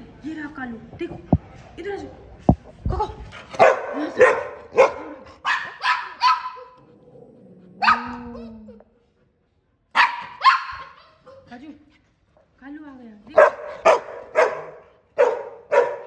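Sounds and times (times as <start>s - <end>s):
dogs barking: 3.6s - 6.8s, 7.8s - 8.2s, 9.9s - 11.0s, 13.4s - 16.0s.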